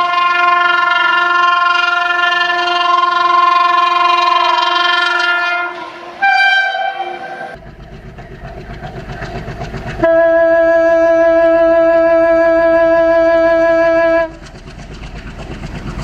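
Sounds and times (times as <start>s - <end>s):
locomotive air horn blast: 0.0s - 7.6s, 10.0s - 14.4s
loud steady tone: 0.0s - 14.6s
train wheels clattering over rails: 7.5s - 10.4s, 13.9s - 16.0s.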